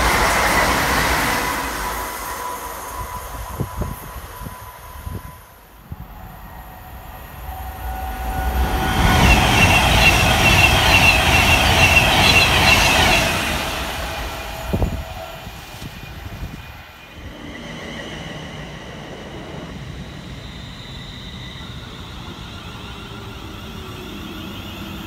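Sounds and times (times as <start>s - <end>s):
train wheel and rail rush: 0.0s - 25.0s
high squealing tone: 0.2s - 16.3s.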